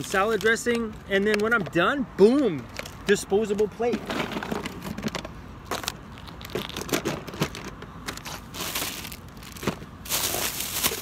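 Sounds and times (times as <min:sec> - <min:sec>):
plastic bag rustling: 0:08.1 - 0:11.0.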